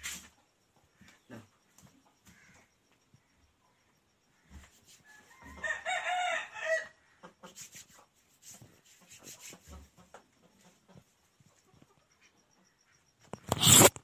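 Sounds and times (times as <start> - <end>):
rooster crowing: 5.0 - 7.0.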